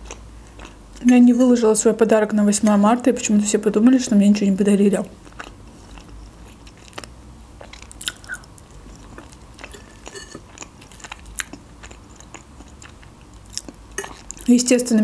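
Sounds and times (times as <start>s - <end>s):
close-miked chewing: 0.0s - 1.1s, 5.2s - 14.5s.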